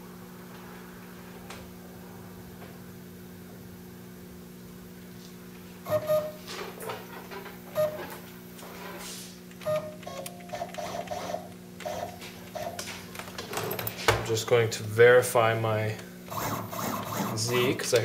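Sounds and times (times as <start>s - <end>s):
steady electrical hum: 0.0s - 18.0s
stepper motors whining with clacks: 9.5s - 13.8s, 16.3s - 18.0s.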